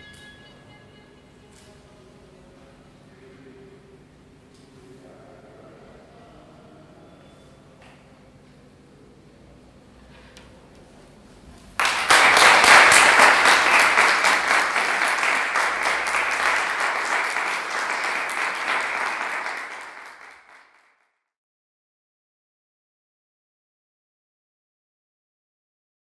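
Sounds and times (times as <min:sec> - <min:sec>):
audience applause: 0:11.8 - 0:21.0.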